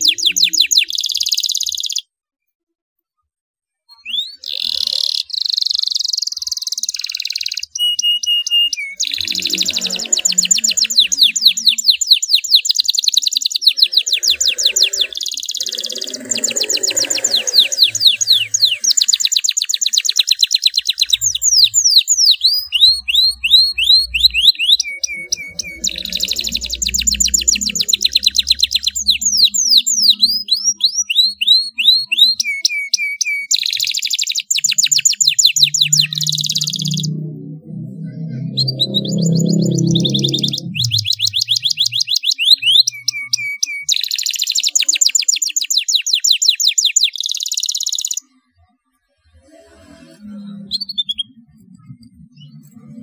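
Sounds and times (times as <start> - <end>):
canary singing in rolling trills: 0.0 - 2.1, 3.9 - 53.0.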